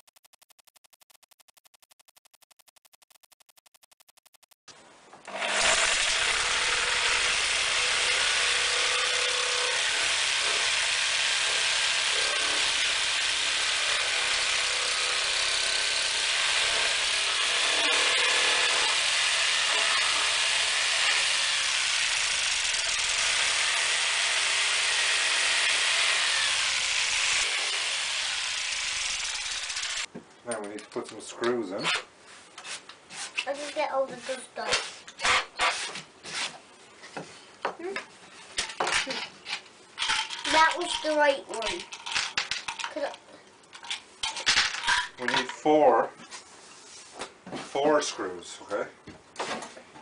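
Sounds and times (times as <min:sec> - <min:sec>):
power tool running: 0:05.3 - 0:30.1.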